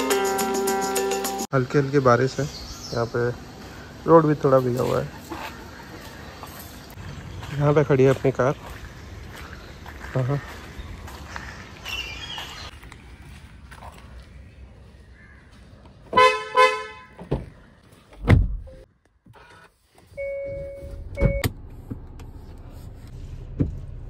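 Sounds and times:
car horn chirps: 16.1 - 17.2
car door thudding shut: 18.2 - 18.7.

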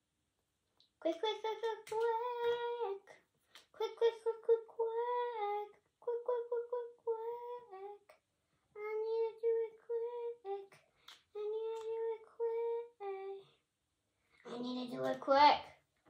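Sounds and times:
girl singing wordless tune: 0.8 - 13.6.

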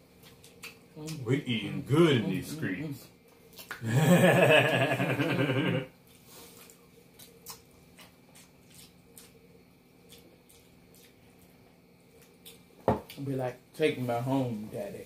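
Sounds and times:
man laughing heartily: 3.8 - 5.9.

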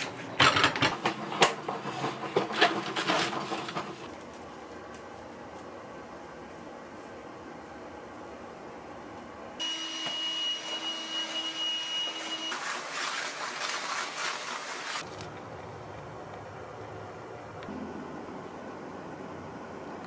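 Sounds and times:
vacuum cleaner high whine: 9.6 - 12.6.

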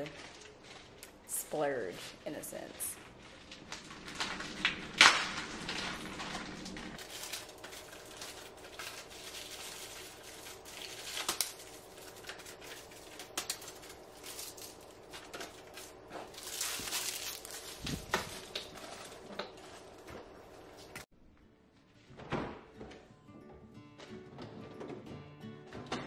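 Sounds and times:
plastic packaging crinkling: 0.0 - 1.3, 2.6 - 21.1.

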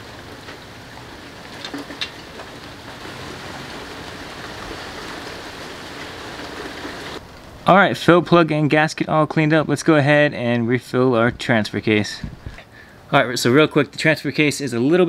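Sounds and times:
steady rain: 0.0 - 9.9.

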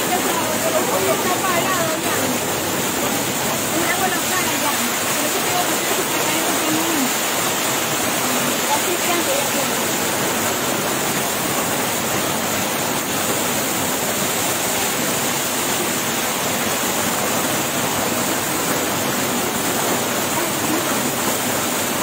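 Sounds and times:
waterfall pouring into pool: 0.0 - 22.0.

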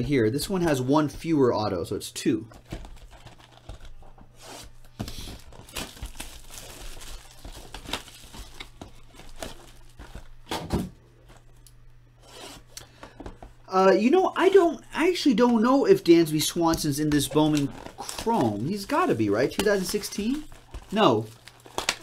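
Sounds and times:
plastic wrap crinkling and tearing: 2.6 - 10.5, 16.2 - 22.0.

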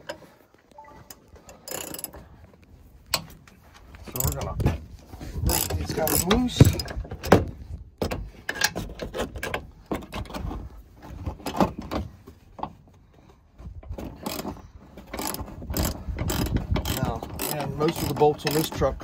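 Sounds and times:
socket ratchet clicking: 5.5 - 6.4, 15.1 - 18.8.

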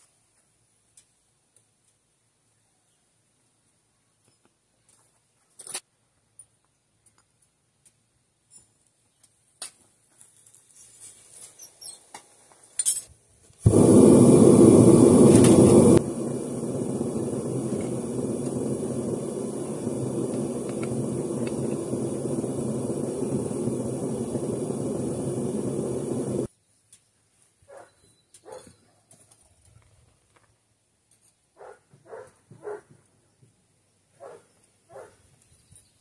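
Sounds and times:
furnace burner rushing: 13.6 - 26.5.

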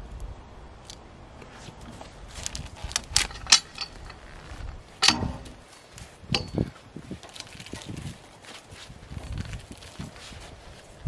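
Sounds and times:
metallic knocks on log and steel: 5.0 - 5.7, 6.3 - 6.7.

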